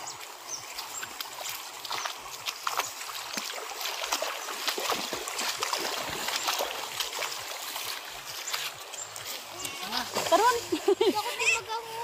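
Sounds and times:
shallow river rushing: 0.0s - 12.0s
small water splashes: 0.0s - 12.0s.

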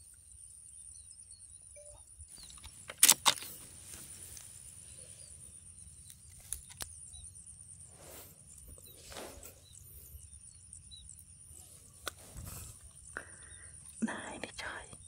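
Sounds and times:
faint bird chirps: 0.0s - 2.9s, 4.6s - 15.0s
high insect drone: 0.0s - 15.0s
air rifle clicks: 2.4s - 4.4s.

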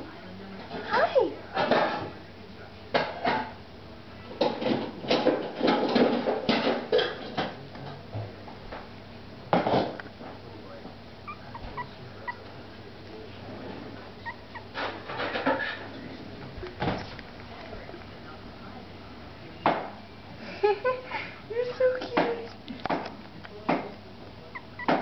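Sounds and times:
puppies yipping: 11.2s - 12.6s, 14.1s - 15.6s, 24.5s - 25.0s.

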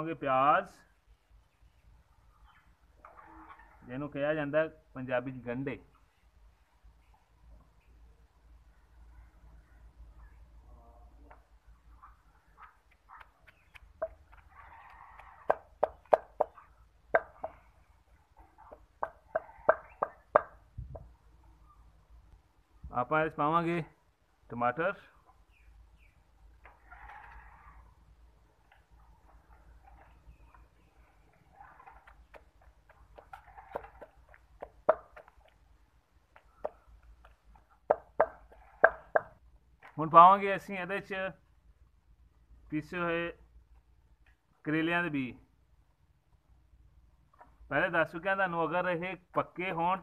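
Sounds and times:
pestle pounding in mortar: 15.5s - 17.6s, 33.1s - 35.4s, 37.8s - 39.4s.

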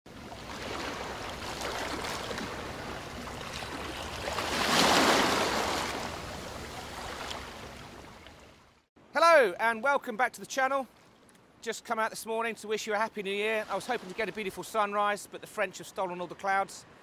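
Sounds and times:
waves washing onto shingle beach: 0.4s - 7.9s.

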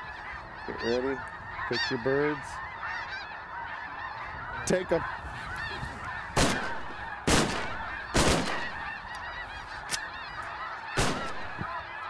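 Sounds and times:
flock of geese calling: 0.0s - 12.0s
shotgun blasts: 6.4s - 8.8s, 11.0s - 11.6s
faint crack: 9.1s - 11.7s.

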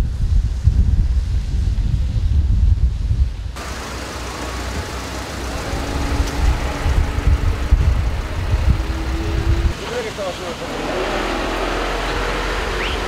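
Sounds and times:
wind rumble on microphone: 0.0s - 3.6s, 5.5s - 9.8s
faint steady engine hum: 3.6s - 13.0s
traffic on wet road: 3.6s - 13.0s.

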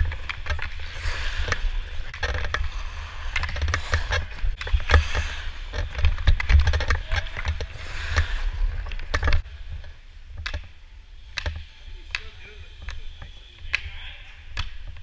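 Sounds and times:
skates scraping on ice: 0.0s - 9.5s
hockey stick tapping puck: 10.4s - 10.7s, 11.3s - 13.9s, 14.5s - 15.0s.

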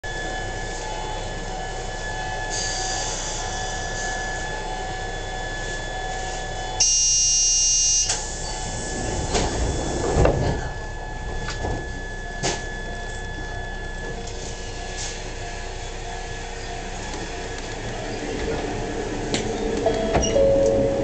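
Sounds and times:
stationary train hum: 0.0s - 21.0s
train door buzzer: 0.1s - 21.0s
sliding doors closing thuds: 8.7s - 11.8s, 18.2s - 21.0s.

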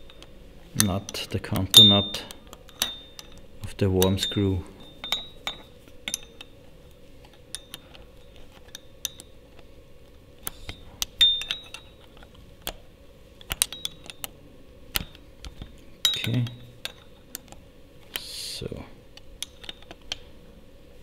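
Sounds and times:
spanner clinking on metal: 0.0s - 6.6s, 7.3s - 9.4s, 10.7s - 12.8s, 13.5s - 14.3s, 14.9s - 17.5s, 19.4s - 20.2s.

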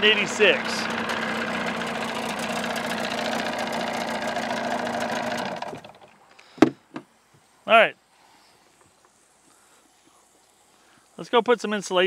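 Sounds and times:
outboard motor running: 0.0s - 6.2s.

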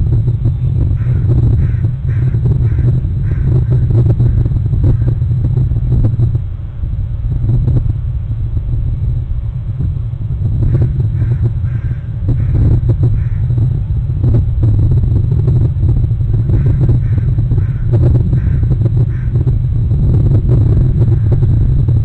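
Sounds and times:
steady low rumble: 0.0s - 22.0s
crows cawing: 1.0s - 5.2s, 10.7s - 13.6s, 16.4s - 19.4s.

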